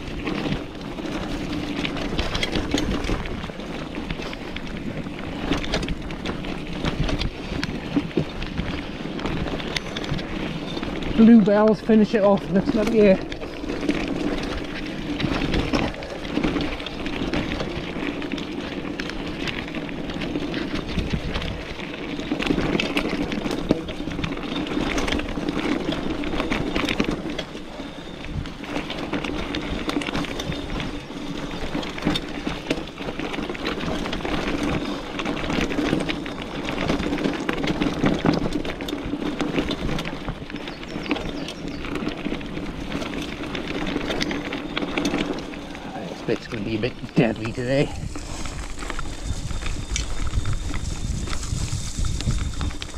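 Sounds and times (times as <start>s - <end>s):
bike clicks and rattles: 0.0s - 52.9s
bike tyres rolling on dirt: 0.0s - 52.9s.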